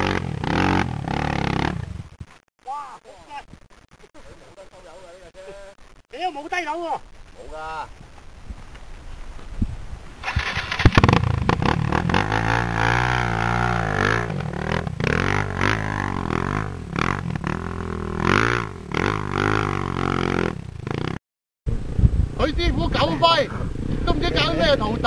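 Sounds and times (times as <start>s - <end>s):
dirt bike engine revving: 0.0s - 2.2s, 10.2s - 21.2s.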